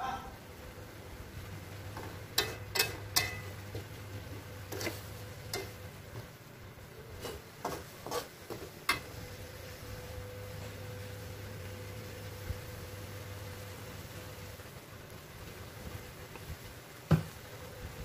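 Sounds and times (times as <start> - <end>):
metal spatula scraping a wok: 2.3 - 5.9, 7.1 - 10.0.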